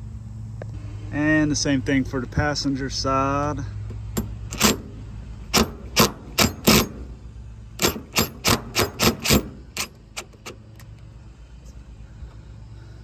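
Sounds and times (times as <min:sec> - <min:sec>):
impact driver hammering bursts: 0:04.0 - 0:07.1, 0:07.8 - 0:10.5.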